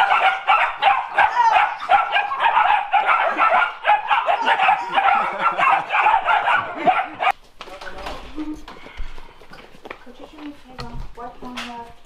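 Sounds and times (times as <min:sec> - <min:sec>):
puppies yipping and barking: 0:00.0 - 0:07.4.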